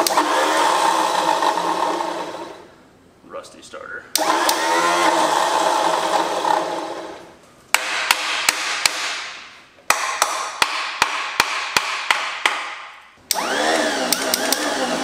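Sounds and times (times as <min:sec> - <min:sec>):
starter motor whirring: 0:00.0 - 0:02.6, 0:04.2 - 0:07.3, 0:13.3 - 0:15.0.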